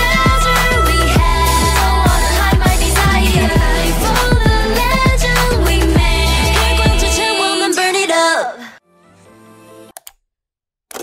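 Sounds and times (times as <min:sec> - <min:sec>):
pop dance music: 0:00.0 - 0:08.6
women singing: 0:00.0 - 0:08.8
deep kick drums: 0:02.1 - 0:05.4.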